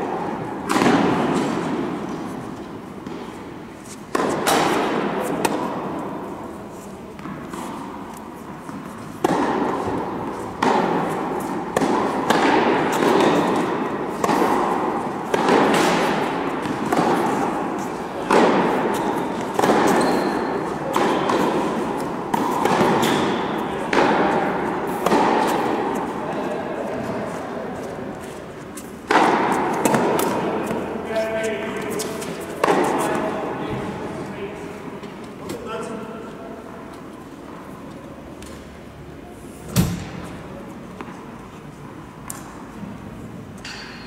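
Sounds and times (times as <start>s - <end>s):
balls bouncing on hard court: 0.0s - 3.4s, 4.1s - 6.2s, 7.1s - 34.1s, 39.7s - 41.2s
tennis balls struck by rackets: 0.0s - 34.1s, 39.7s - 41.3s.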